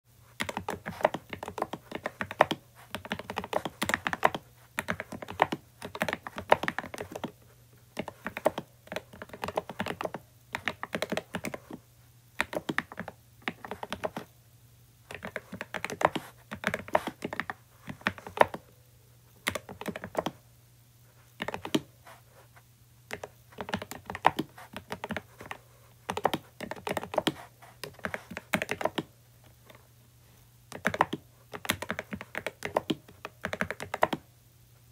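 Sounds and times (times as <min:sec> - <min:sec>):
mechanical keyboard typing: 0:00.4 - 0:07.4, 0:08.0 - 0:11.8, 0:12.4 - 0:14.3, 0:15.1 - 0:18.6, 0:19.4 - 0:20.4, 0:21.4 - 0:21.9, 0:23.1 - 0:29.1, 0:30.7 - 0:34.2.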